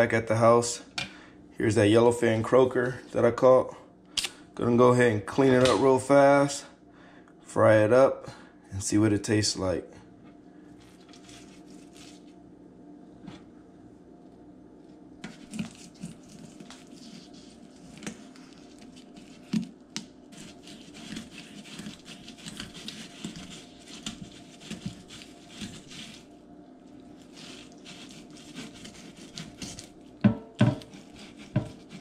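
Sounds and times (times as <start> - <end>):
knife scraping fish scales: 10.8 - 12.3, 15.2 - 19.7, 20.3 - 26.3, 27.2 - 30.0, 30.8 - 32.0
knife knocking on cutting board: 30.2 - 30.9.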